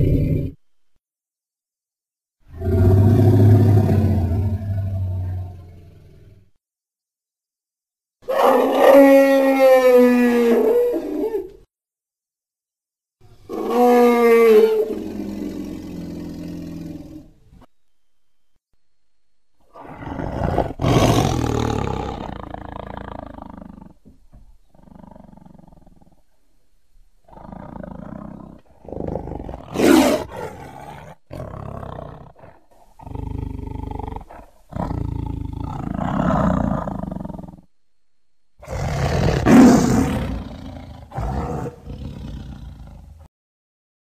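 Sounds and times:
dinosaur roars: 0:00.0 - 0:00.6, 0:02.5 - 0:06.6, 0:08.3 - 0:11.5, 0:13.4 - 0:17.4, 0:19.7 - 0:24.0, 0:27.3 - 0:37.7, 0:38.6 - 0:43.3.

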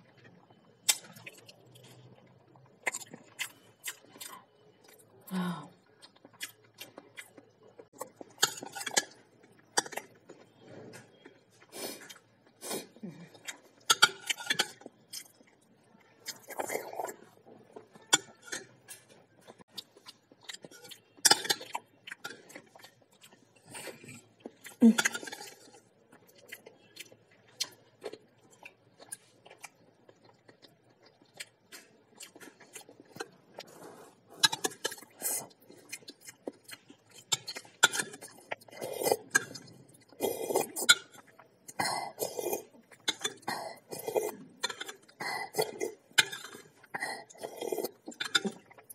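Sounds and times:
chewing and slurping: 0:06.0 - 0:48.9.

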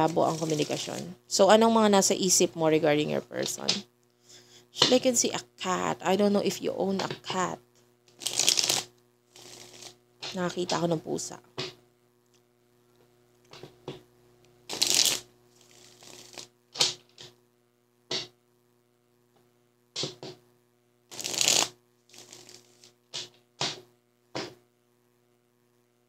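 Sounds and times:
cards being shuffled: 0:00.0 - 0:01.1, 0:08.1 - 0:10.8, 0:14.7 - 0:17.3, 0:21.1 - 0:23.8
cards snapping and flicking: 0:08.1 - 0:10.4, 0:14.7 - 0:17.4, 0:21.1 - 0:23.8.

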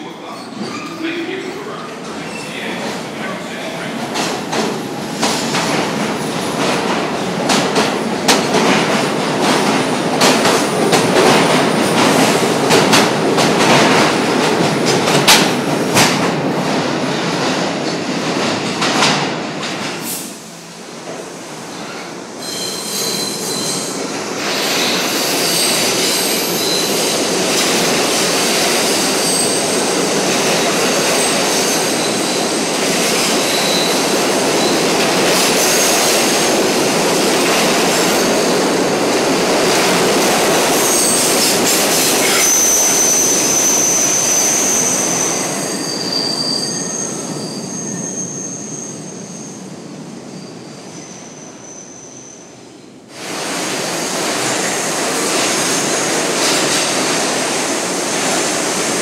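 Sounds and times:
subway train wheels rumbling: 0:00.0 - 0:59.0
high-pitched wheel squeals: 0:22.4 - 0:23.9, 0:42.2 - 0:49.6.

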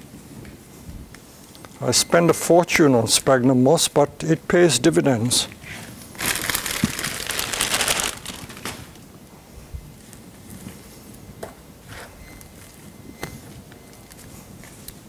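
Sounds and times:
soft moss rustles: 0:06.1 - 0:09.0
dry moss and plastic bag crackling: 0:06.1 - 0:09.1.

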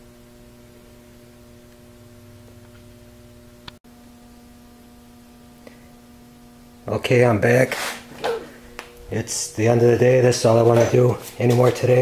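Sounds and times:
low electrical mains hum: 0:00.0 - 0:12.0.

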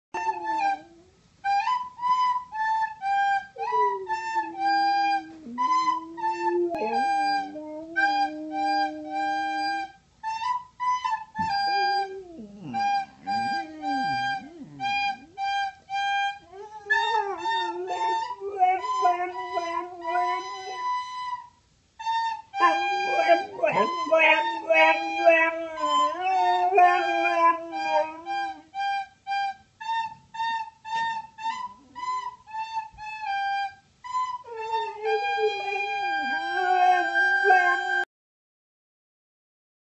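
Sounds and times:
dog howling: 0:00.2 - 0:01.0, 0:03.6 - 0:09.8, 0:11.4 - 0:15.7, 0:16.3 - 0:20.9, 0:22.6 - 0:28.6, 0:34.4 - 0:38.1
recorder playing a simple tune: 0:00.2 - 0:38.0.

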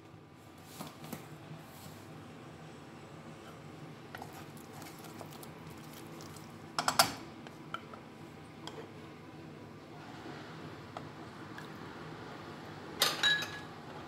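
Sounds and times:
wooden spatula stirring in pot: 0:04.1 - 0:06.6
garlic frying: 0:04.1 - 0:06.8.

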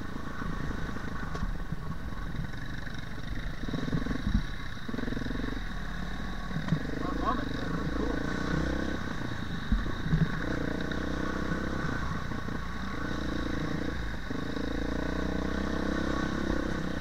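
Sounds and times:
dirt bike engine revving: 0:02.5 - 0:17.0.

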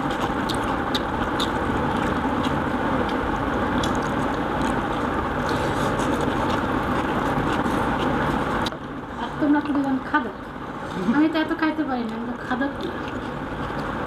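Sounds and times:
chewing: 0:00.0 - 0:08.8, 0:12.0 - 0:14.0
loud steady background rush: 0:00.0 - 0:14.0.

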